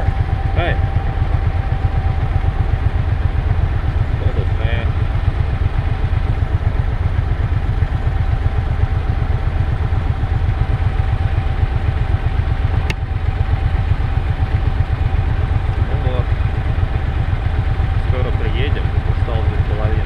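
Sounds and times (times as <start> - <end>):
motorcycle engine idling: 0.0 - 20.0
sharp click: 12.8 - 13.0.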